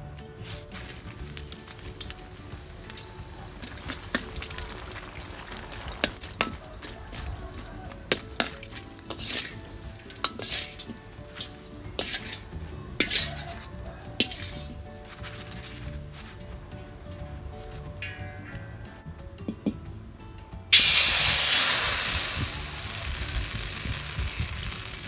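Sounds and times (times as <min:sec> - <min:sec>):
chillies sizzling in oil: 0:00.0 - 0:19.0, 0:20.7 - 0:25.0
strainer scraping and clinking wok: 0:00.4 - 0:18.8.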